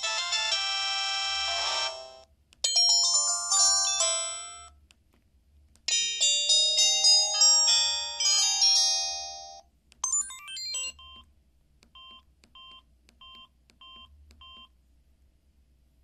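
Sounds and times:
phone chiming polyphonic melody: 2.7 - 4.7, 5.9 - 11.0
phone keypad beeps: 10.0 - 11.3, 11.9 - 14.7.

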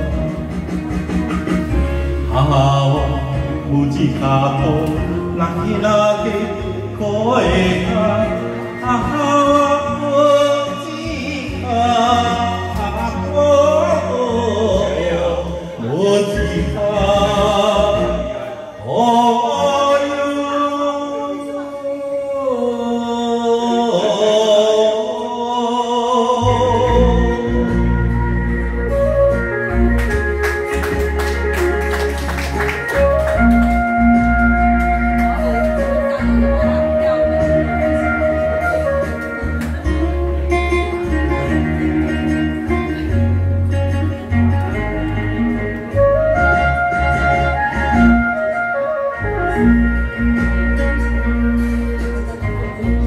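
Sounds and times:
karaoke backing track: 0.0 - 53.0
man singing into microphone: 2.2 - 29.8.

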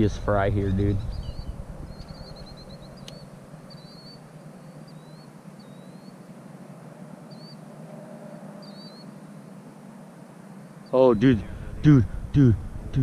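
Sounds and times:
low background rumble: 0.0 - 13.0
small bird chirping: 0.7 - 9.9.

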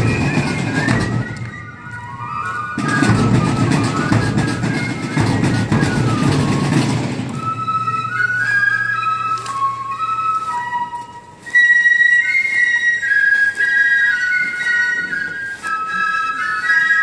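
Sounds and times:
drum strokes: 0.0 - 10.5
fifes playing a march: 0.0 - 17.0.

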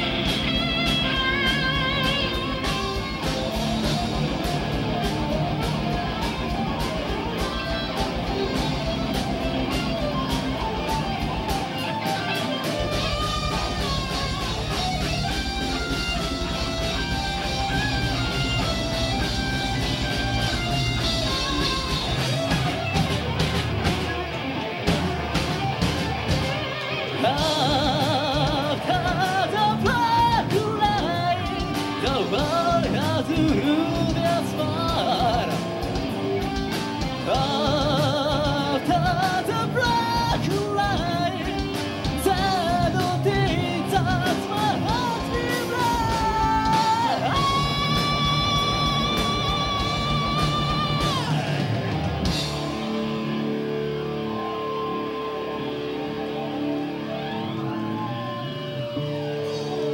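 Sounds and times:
metal band playing live: 0.0 - 59.9
singer's voice: 26.9 - 52.6.

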